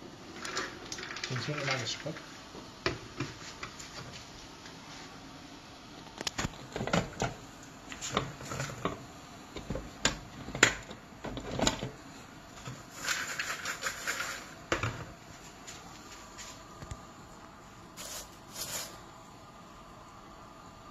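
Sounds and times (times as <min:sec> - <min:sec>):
hand rummaging in popcorn: 0:12.7 - 0:14.6.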